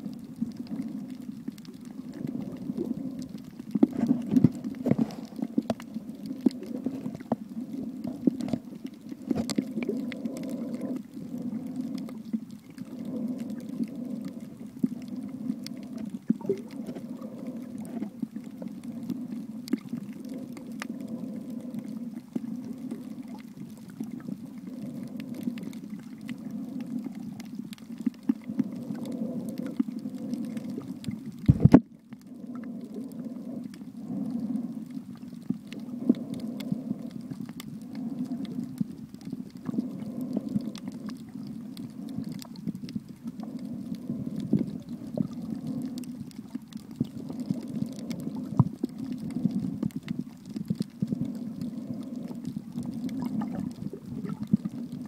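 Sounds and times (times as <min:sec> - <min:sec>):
faint clicks and crackles: 0:00.0 - 0:55.0
low underwater rumble: 0:00.0 - 0:55.0.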